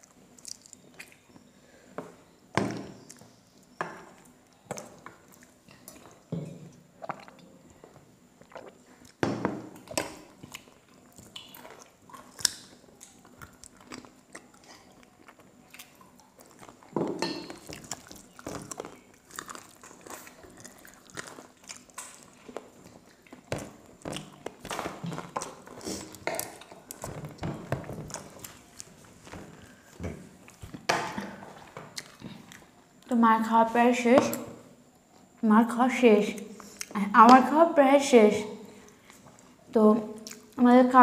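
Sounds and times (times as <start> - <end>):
chewing with lip smacks: 9.8 - 27.0.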